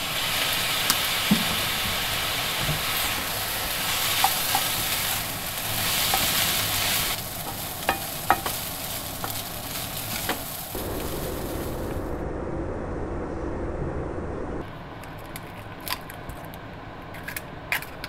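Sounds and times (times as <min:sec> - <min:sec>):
food sizzling in frying pan: 0:00.0 - 0:12.1.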